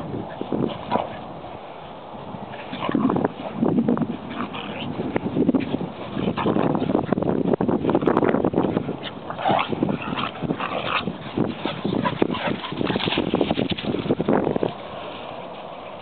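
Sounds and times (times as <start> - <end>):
knocks and rustles of playing dogs: 0.2 - 16.0
small dogs vocalizing: 2.4 - 7.3, 7.9 - 13.5.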